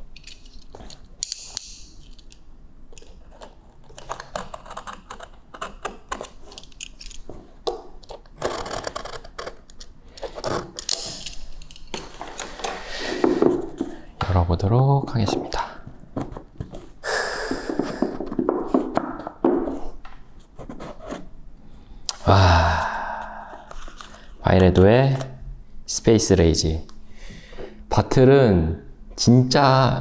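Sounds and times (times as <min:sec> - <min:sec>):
sticker tearing rustles: 0:08.0 - 0:11.2.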